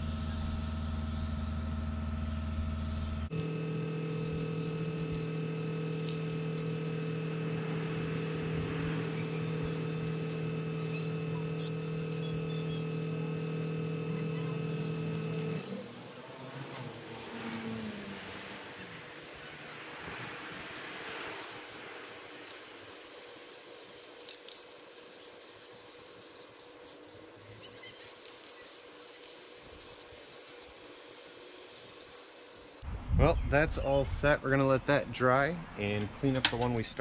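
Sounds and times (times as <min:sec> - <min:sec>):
aerosol spray can hissing: 0:03.3 - 0:32.8
high chirping: 0:03.5 - 0:32.8.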